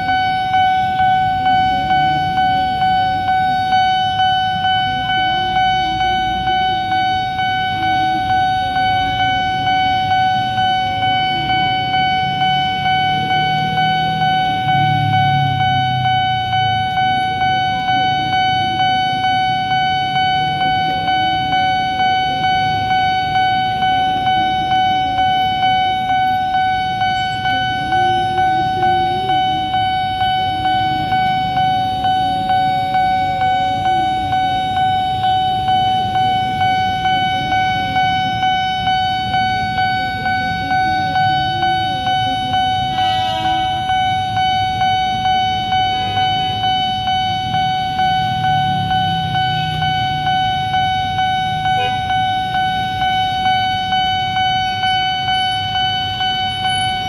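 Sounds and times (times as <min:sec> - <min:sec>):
idling car and motorcycle engines: 0:00.0 - 0:57.0
level crossing warning bell: 0:00.0 - 0:57.0.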